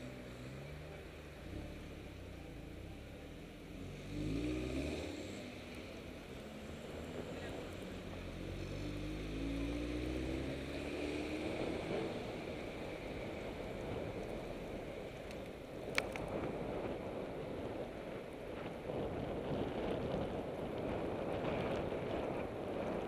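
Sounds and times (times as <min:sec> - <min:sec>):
car engine accelerating: 0:00.0 - 0:17.2
wind rushing over microphone: 0:05.3 - 0:23.0.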